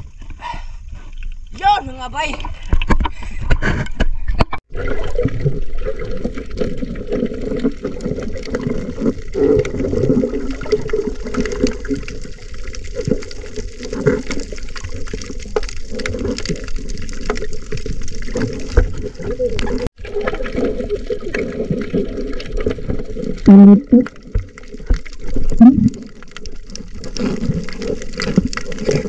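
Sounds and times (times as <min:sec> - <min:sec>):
water sloshing and gurgling underwater: 0:00.0 - 0:29.0.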